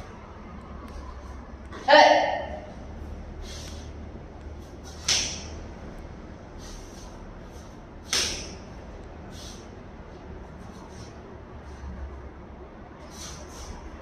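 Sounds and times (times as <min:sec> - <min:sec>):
uniform snapping: 0:05.0 - 0:05.6, 0:08.1 - 0:08.6.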